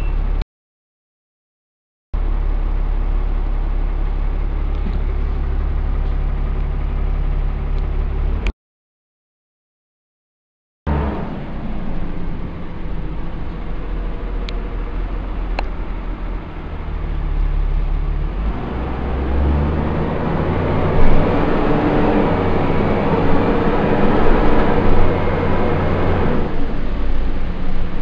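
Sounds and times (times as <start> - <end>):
bus diesel engine drone: 0.0 - 0.4, 2.2 - 8.5, 10.9 - 28.0.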